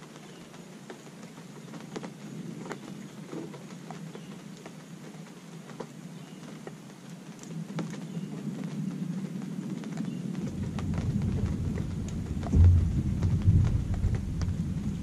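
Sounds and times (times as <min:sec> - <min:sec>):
rain falling: 0:00.0 - 0:15.0
drops tapping and dripping: 0:10.4 - 0:15.0.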